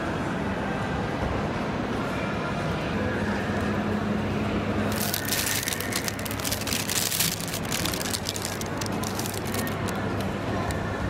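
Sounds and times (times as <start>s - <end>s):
paper bag crinkling and rustling: 4.9s - 10.0s.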